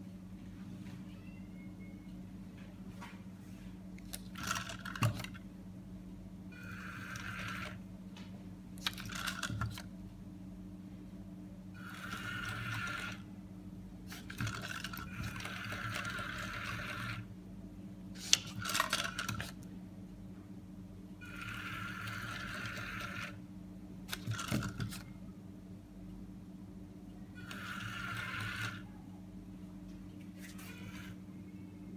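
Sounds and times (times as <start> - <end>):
gearmotors whirring: 4.1 - 5.4, 6.6 - 7.8, 11.8 - 13.3, 14.1 - 17.3, 21.2 - 23.4, 27.4 - 28.9, 30.4 - 31.3.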